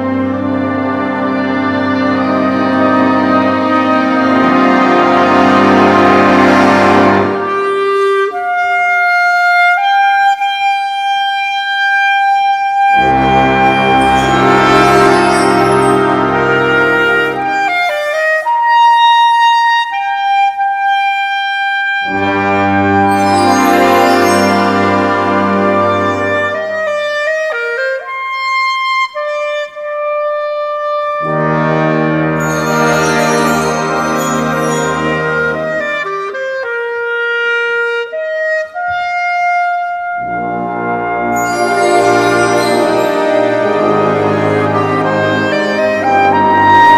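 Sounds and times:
symphony orchestra playing: 0.0 - 9.4, 12.6 - 18.4, 22.0 - 27.5, 31.2 - 36.3, 40.1 - 46.9
solo clarinet holding high note: 5.5 - 46.9.

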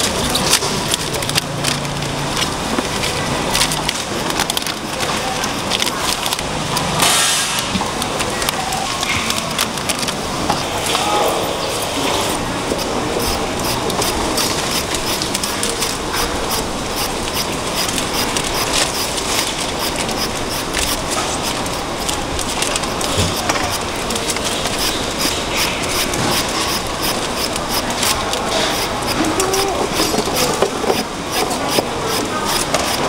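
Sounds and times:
steady background din: 0.0 - 33.0
blade scraping mango skin: 11.9 - 33.0.

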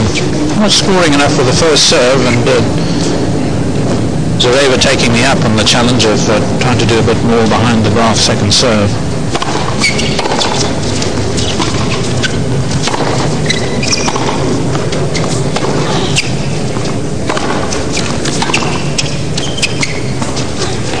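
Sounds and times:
racket striking tennis ball: 9.3 - 21.0
tennis shoes squeaking on court: 9.4 - 21.0.

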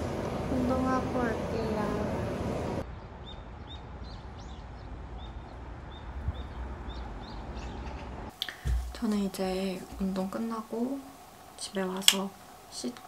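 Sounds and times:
low outdoor rumble: 0.0 - 13.0
small birds chirping: 2.8 - 13.0.

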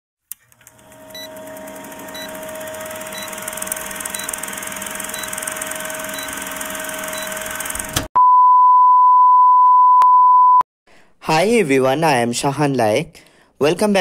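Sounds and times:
film projector whirring clatter: 0.3 - 8.1.

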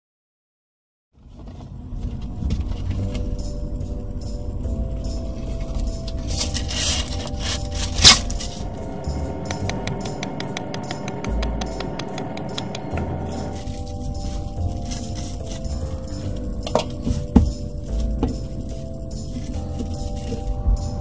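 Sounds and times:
quiet background music: 1.2 - 21.0
paper rustling: 5.4 - 8.7, 13.3 - 20.7.

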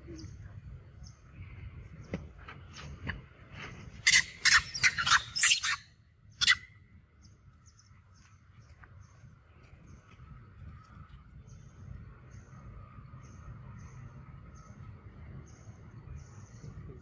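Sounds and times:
monkey shrieking: 4.0 - 5.8, 6.4 - 6.6.

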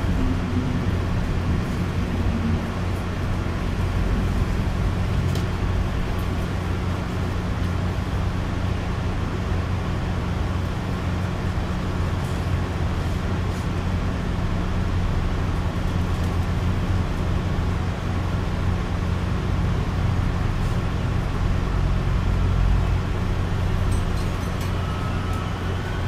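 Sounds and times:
train rolling rumble: 0.0 - 26.0.

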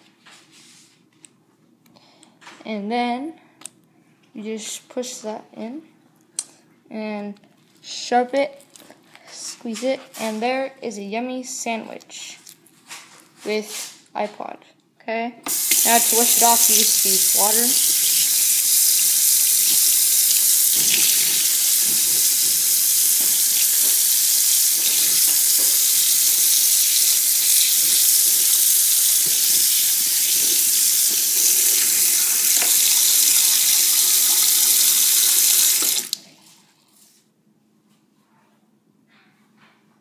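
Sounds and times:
tap water splashing into sink: 19.6 - 26.8, 29.1 - 36.3.

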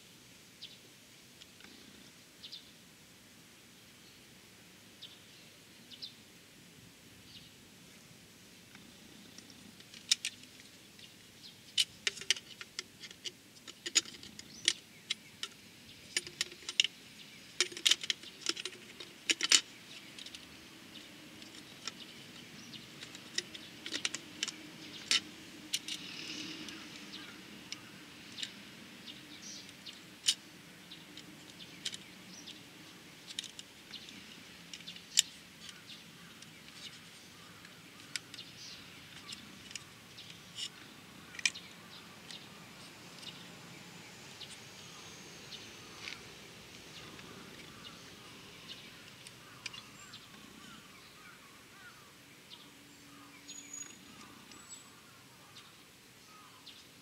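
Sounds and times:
small metal and plastic clicks: 8.7 - 11.1, 11.7 - 32.6, 33.2 - 42.4, 48.6 - 50.7.

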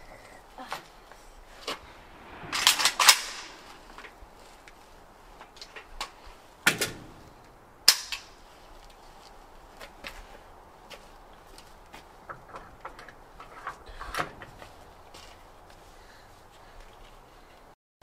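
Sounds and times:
rifle shots with echo: 2.3 - 4.0.

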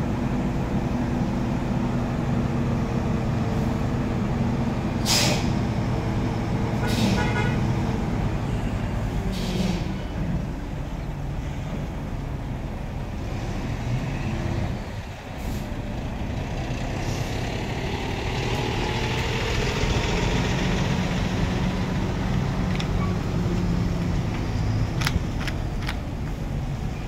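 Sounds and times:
diesel engine running: 0.0 - 27.0
sharp clicks: 24.9 - 26.4.

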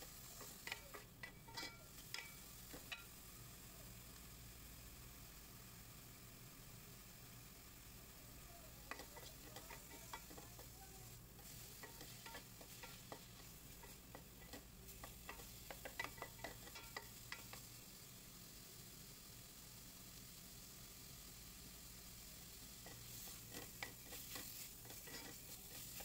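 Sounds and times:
wooden spoon scraping metal pot: 0.1 - 3.1, 8.9 - 10.8, 11.4 - 17.6, 22.8 - 26.0.

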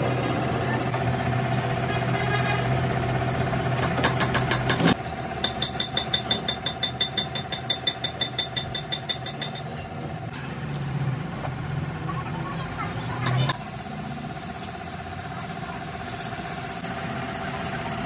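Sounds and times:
engine running: 0.0 - 7.6
fast ringing ticks: 5.4 - 9.7.

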